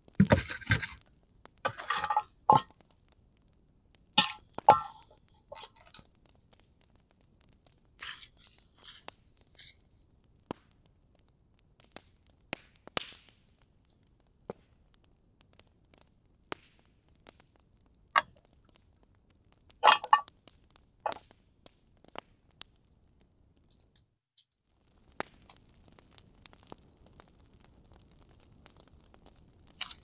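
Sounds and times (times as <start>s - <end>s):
crinkling tearing rustle: 8.0s - 10.0s, 28.7s - 30.0s.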